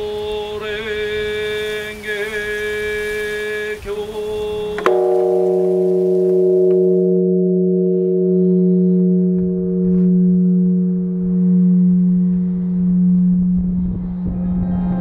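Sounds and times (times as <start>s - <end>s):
large temple bell ringing: 4.8s - 15.0s.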